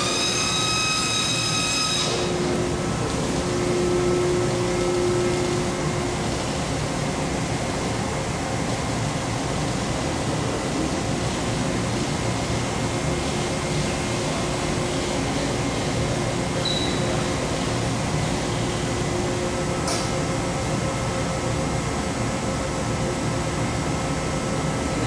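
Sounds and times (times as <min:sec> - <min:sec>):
cnc router hum and whir: 0:00.0 - 0:25.0.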